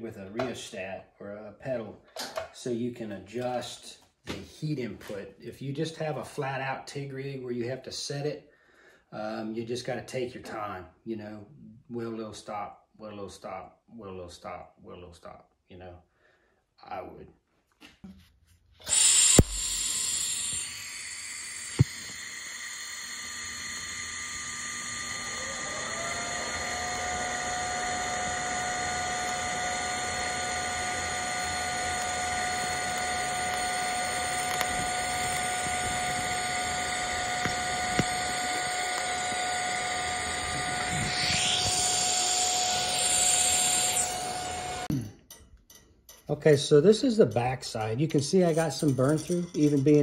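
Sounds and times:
welding arc buzz and hiss: 18.8s - 44.9s
high rising whine: 18.9s - 44.9s.

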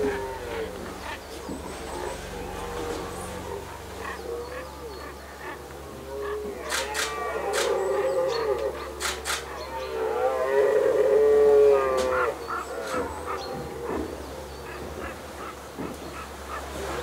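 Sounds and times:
deer stags roaring: 0.0s - 17.0s
sharp clicks: 6.7s - 7.8s, 9.0s - 9.5s.

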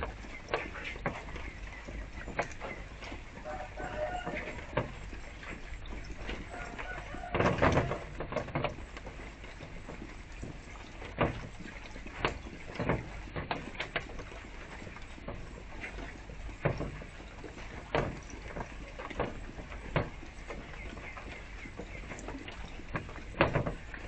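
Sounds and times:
doves pecking on wooden tray: 0.0s - 24.0s
fountain trickling: 3.3s - 7.3s.

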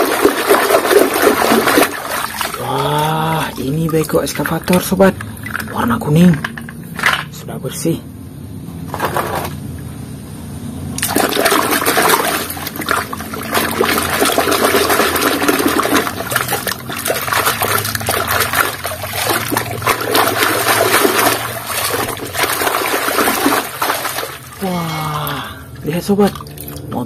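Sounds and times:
toy being scrubbed in water: 0.0s - 4.9s, 11.0s - 24.6s
water sloshing in a basin: 0.0s - 6.3s, 11.0s - 27.0s.

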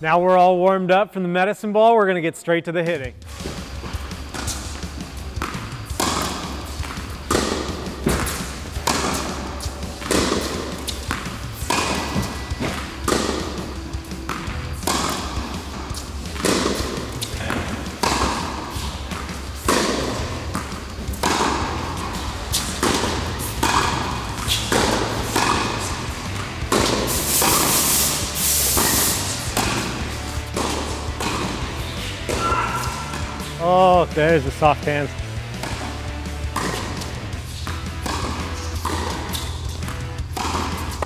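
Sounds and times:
racquets hitting tennis ball: 3.3s - 41.0s.

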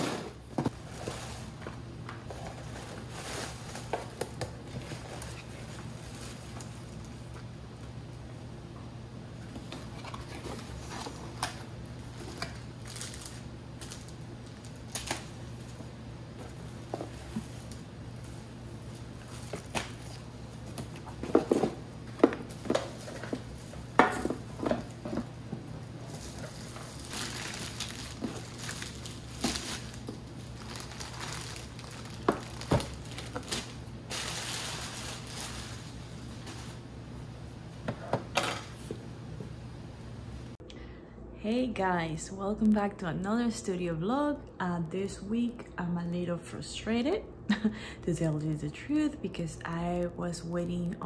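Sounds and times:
plastic packaging crinkling: 10.6s - 15.8s, 26.0s - 36.9s.

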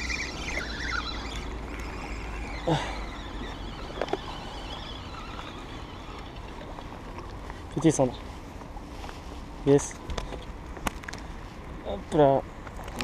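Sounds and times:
falling squeal: 0.0s - 6.8s
fishing reel cranking: 0.0s - 6.9s.

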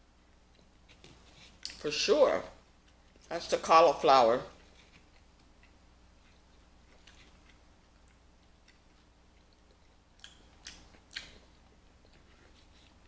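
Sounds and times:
person chewing: 0.5s - 1.8s, 4.6s - 13.0s
sharp mouth clicks: 10.2s - 11.4s.

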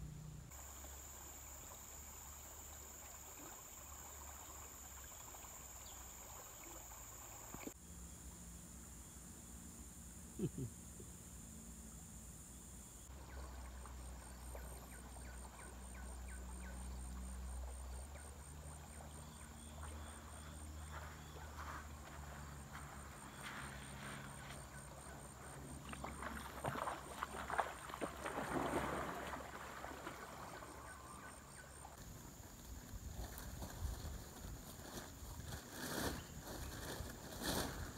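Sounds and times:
high insect chirp: 0.0s - 37.9s
water splashing: 17.7s - 32.2s.

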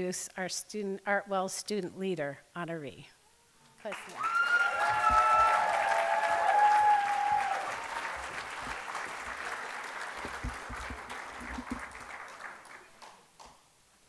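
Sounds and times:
audience applauding: 3.8s - 13.6s.

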